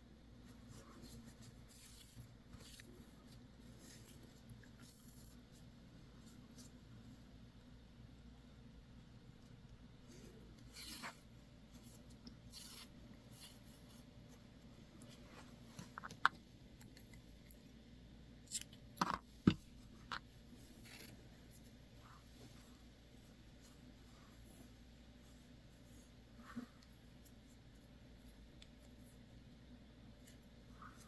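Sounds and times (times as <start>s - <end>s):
yarn rubbing and rustling: 0.4s - 7.1s, 10.0s - 16.0s, 19.7s - 29.4s.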